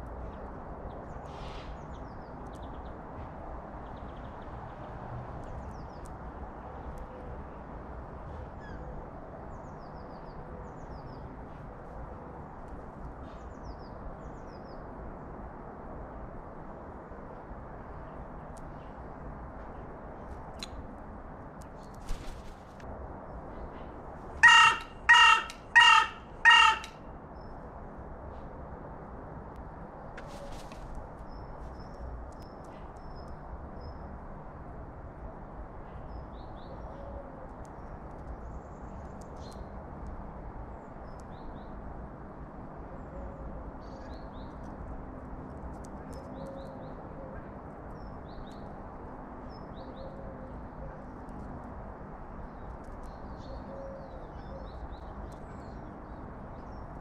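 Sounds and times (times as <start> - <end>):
songbirds chirping: 0.0 - 16.2, 17.4 - 28.0, 29.6 - 34.3, 45.8 - 57.0.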